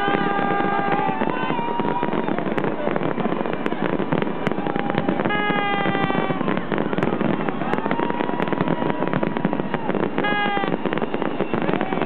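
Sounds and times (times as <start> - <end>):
horn-like tone: 0.0 - 1.1, 5.3 - 6.5, 10.2 - 11.4
fireworks crackling and popping: 0.0 - 12.0.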